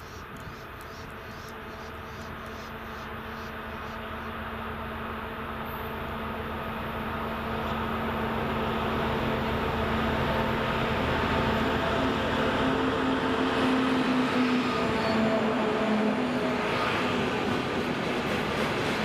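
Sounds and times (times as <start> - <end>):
diesel locomotive engine drone: 0.0 - 19.0.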